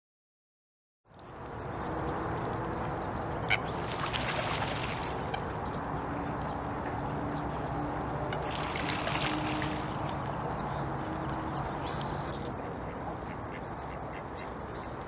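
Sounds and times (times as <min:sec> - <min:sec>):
waterfowl calls: 0:03.4 - 0:05.5, 0:08.3 - 0:10.2.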